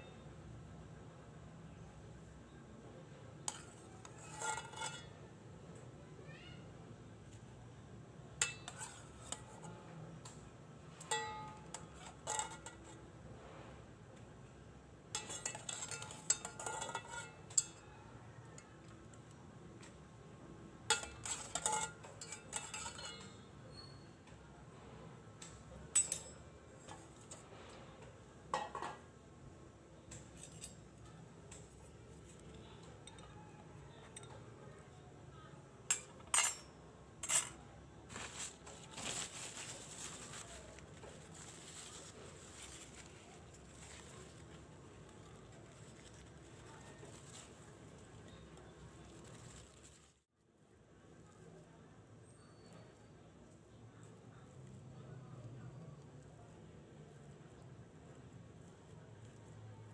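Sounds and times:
metal utensil clinking on plate: 3.5s - 5.2s, 11.0s - 13.0s, 15.1s - 17.8s, 20.9s - 24.0s, 25.9s - 26.5s, 35.9s - 37.6s.

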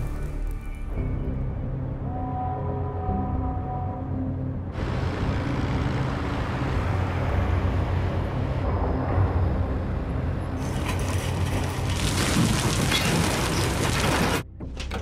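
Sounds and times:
heavy machinery rumbling: 4.8s - 15.0s.

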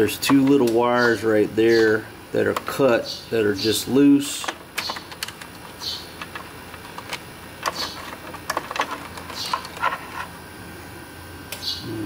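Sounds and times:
fingers handling wires clicking: 4.3s - 10.3s.

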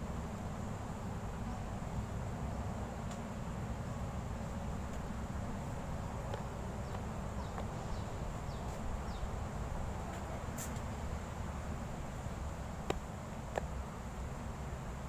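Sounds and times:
bird chirping: 6.3s - 9.4s.

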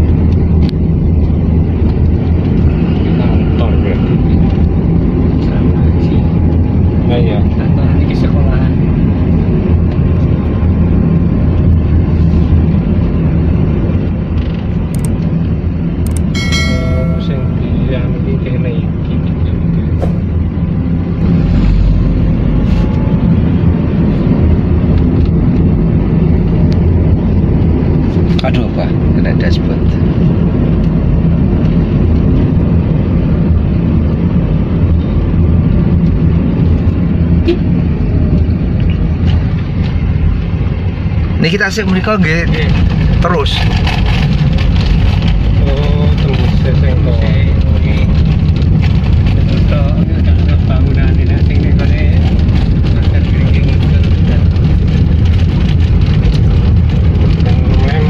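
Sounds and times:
car engine and tyre drone: 0.0s - 58.0s.

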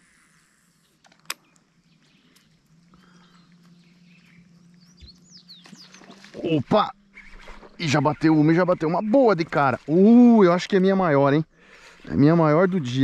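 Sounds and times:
low steady hum: 0.0s - 13.0s
high bird chirps: 0.8s - 9.1s.

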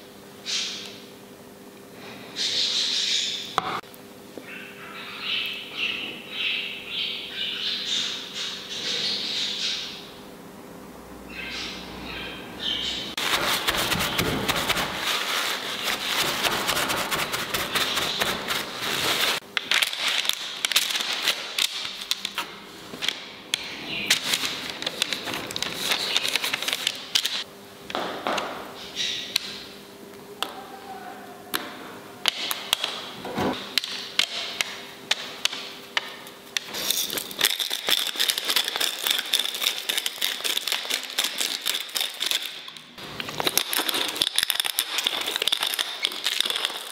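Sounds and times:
paper rustling and crinkling: 13.2s - 22.5s, 24.1s - 27.4s, 36.6s - 42.7s, 43.3s - 46.9s.

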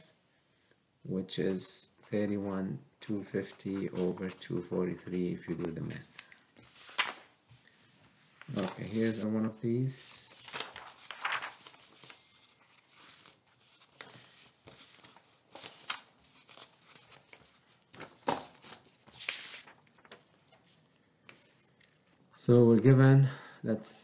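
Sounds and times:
paper rustling and sliding: 3.7s - 22.1s.

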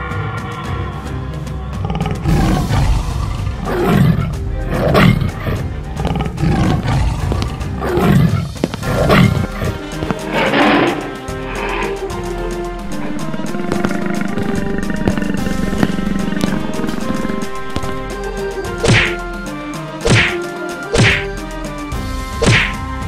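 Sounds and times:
background music: 0.0s - 23.0s
animal roar sound effects: 1.7s - 18.2s.

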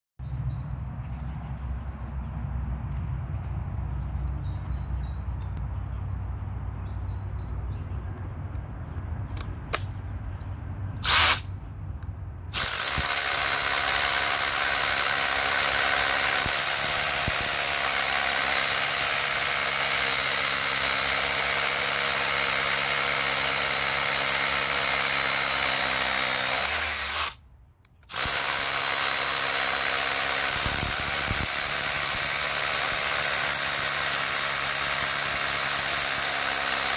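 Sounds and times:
rotary hammer drilling into concrete: 11.0s - 11.4s, 12.6s - 27.4s, 28.0s - 36.9s.

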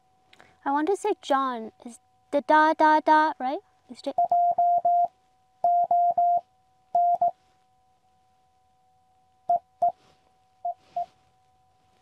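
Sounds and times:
faint high steady tone: 0.1s - 12.0s
morse code tone: 4.1s - 6.4s, 7.0s - 7.4s, 9.5s - 10.0s, 10.6s - 11.2s.

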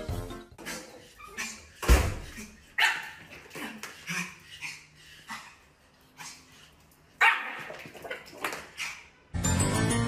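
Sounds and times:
small dog barking: 2.8s - 3.2s, 7.2s - 7.8s.

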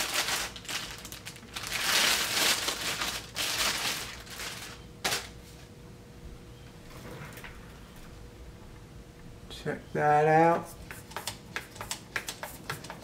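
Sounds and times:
plastic bag crinkling: 0.0s - 5.4s.

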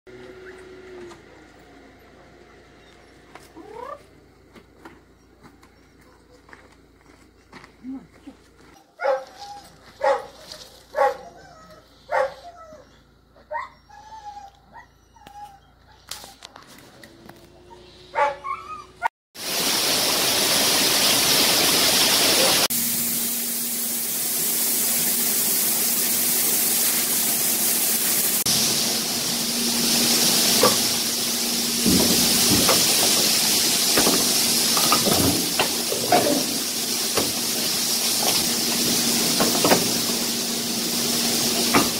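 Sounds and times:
dog barking: 9.0s - 9.4s, 10.0s - 12.5s, 18.1s - 18.6s
loud steady hiss: 19.4s - 41.9s.

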